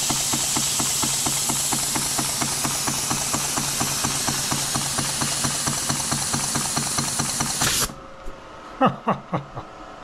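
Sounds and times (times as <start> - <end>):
model steam engine chuffing: 0.0 - 7.9.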